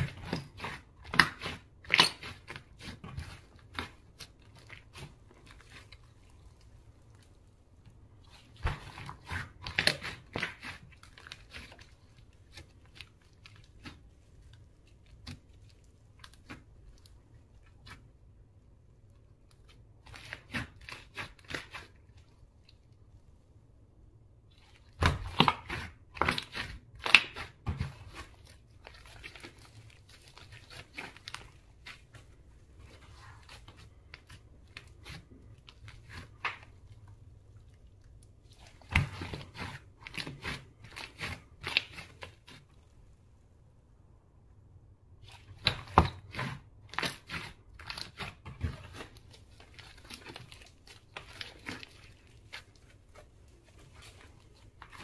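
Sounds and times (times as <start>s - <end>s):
slime crackling and popping: 24.5s - 42.6s, 45.2s - 55.0s.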